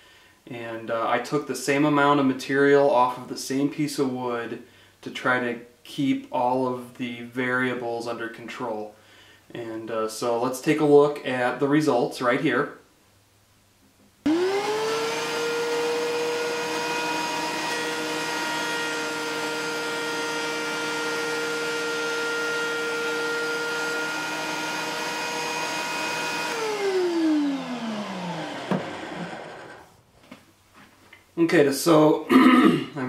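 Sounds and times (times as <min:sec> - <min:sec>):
planer motor whine: 0:14.3 - 0:29.9.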